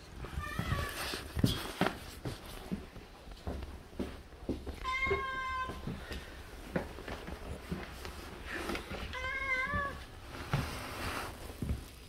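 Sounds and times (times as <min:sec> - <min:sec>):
soft footsteps on wooden floor: 0:00.1 - 0:12.0
cat meowing: 0:00.3 - 0:01.0, 0:04.8 - 0:05.8, 0:09.0 - 0:10.1.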